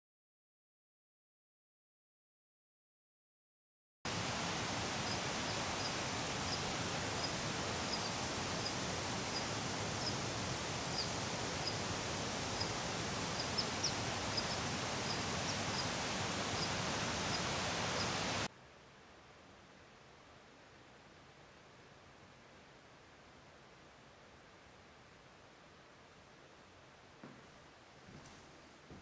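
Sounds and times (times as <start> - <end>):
rain or running water: 4.1 - 18.5
faint hiss: 4.1 - 29.0
small bird chirps: 5.0 - 11.9, 12.5 - 18.4.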